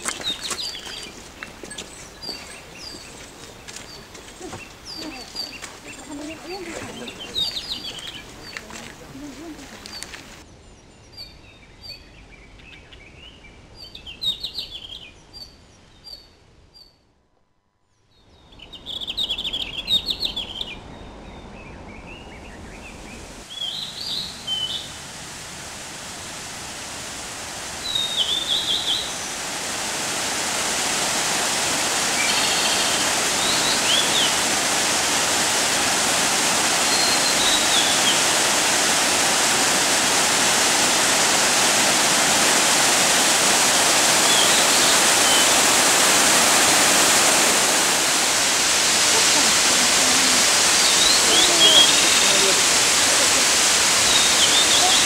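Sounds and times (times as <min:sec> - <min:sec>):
waterfall and stream rushing: 0:00.0 - 0:10.5, 0:22.0 - 0:55.0
small birds chirping: 0:00.0 - 0:16.9, 0:18.1 - 0:25.0, 0:27.8 - 0:29.7, 0:30.3 - 0:55.0.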